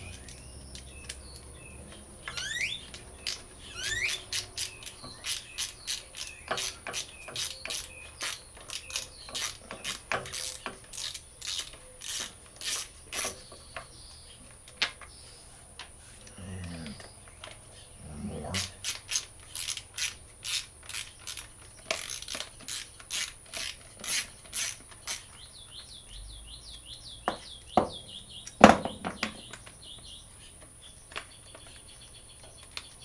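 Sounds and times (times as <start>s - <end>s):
short rising squeaks: 2.2s - 6.8s
ratchet wrench clicking: 2.2s - 13.3s, 18.6s - 25.2s.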